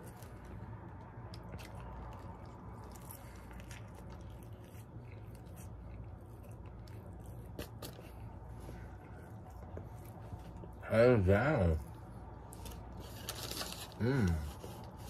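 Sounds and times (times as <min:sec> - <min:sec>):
chewing with wet mouth clicks: 0:00.0 - 0:10.8
steady low hum: 0:00.0 - 0:15.0.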